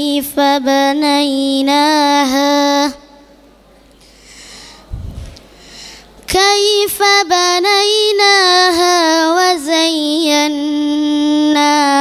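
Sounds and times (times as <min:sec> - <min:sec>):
boy chanting melodically into microphone: 0:00.0 - 0:03.4, 0:06.2 - 0:12.0
breath into microphone: 0:04.0 - 0:06.2.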